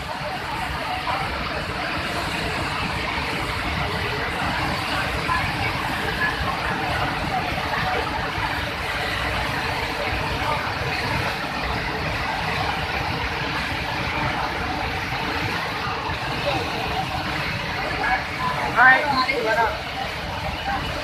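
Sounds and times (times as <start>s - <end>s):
water rushing through dam spillway: 0.0s - 21.0s.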